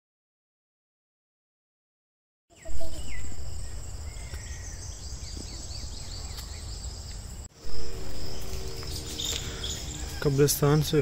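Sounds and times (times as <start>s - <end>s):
crickets trilling: 2.6s - 11.0s
low rumble: 5.0s - 11.0s.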